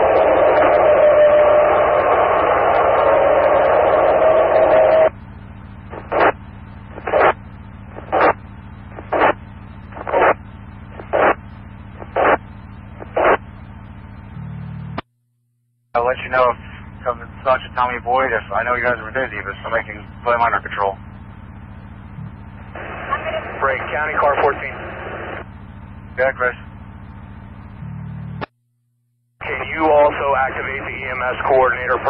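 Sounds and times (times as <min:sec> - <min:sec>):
radio static hissing: 0:00.0 - 0:13.7, 0:16.0 - 0:21.0, 0:22.0 - 0:25.4, 0:26.1 - 0:26.7, 0:29.4 - 0:32.0
low hum: 0:00.0 - 0:32.0
short static bursts: 0:05.8 - 0:13.4.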